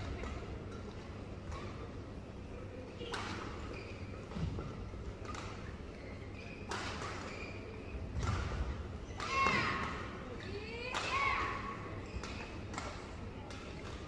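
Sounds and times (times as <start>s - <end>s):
indoor arena hum: 0.0s - 14.0s
racket hitting shuttlecock: 12.2s - 14.0s.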